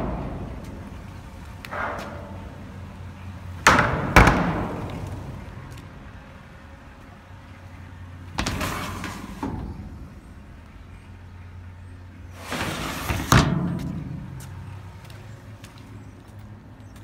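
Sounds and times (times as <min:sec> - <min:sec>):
loud metal bang: 0:00.0 - 0:05.7
dumpster door scraping: 0:00.0 - 0:06.1, 0:08.3 - 0:10.6, 0:12.2 - 0:14.7.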